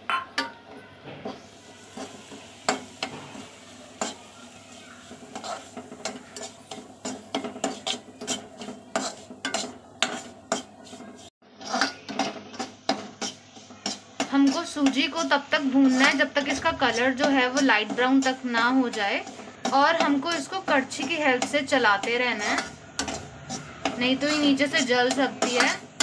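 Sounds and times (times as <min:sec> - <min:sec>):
semolina sizzling in ghee: 0:00.0 - 0:26.0
ladle scraping a steel pan: 0:00.1 - 0:26.0.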